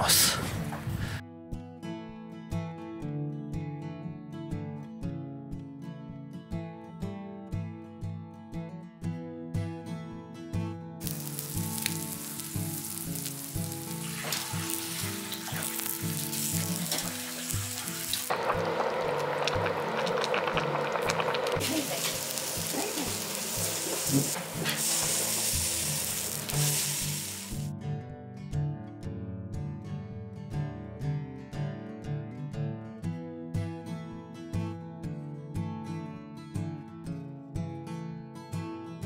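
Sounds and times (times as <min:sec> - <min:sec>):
quiet acoustic guitar music: 0:00.0 - 0:39.0
food sizzling and crackling: 0:11.0 - 0:27.7.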